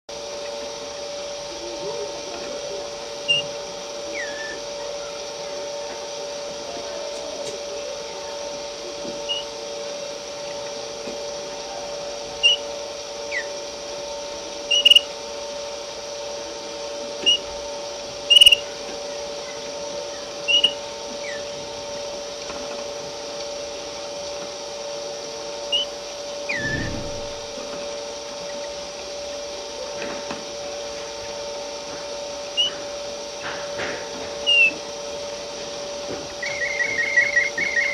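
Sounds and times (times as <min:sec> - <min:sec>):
steady mechanical hum: 0:00.1 - 0:37.9
canary chirping: 0:04.1 - 0:04.6, 0:14.7 - 0:15.1, 0:18.3 - 0:18.7, 0:36.4 - 0:37.9.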